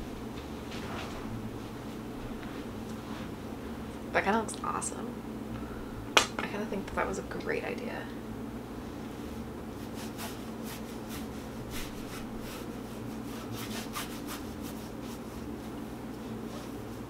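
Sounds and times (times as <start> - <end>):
paintbrush rubbing on canvas: 9.2 - 17.0.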